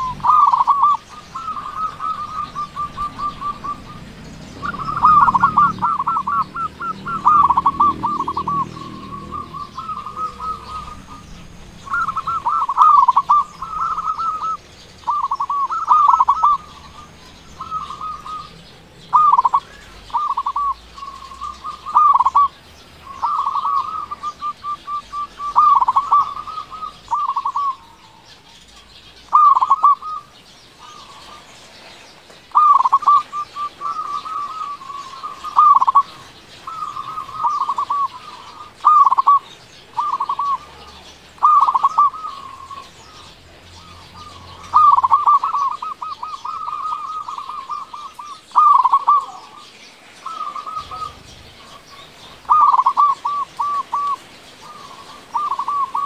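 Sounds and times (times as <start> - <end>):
dove cooing: 0.0 - 56.0.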